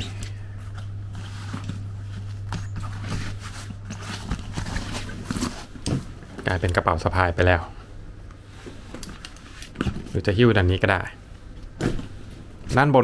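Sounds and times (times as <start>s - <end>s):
steady low hum: 0.0s - 13.0s
bag rustling: 0.8s - 6.4s.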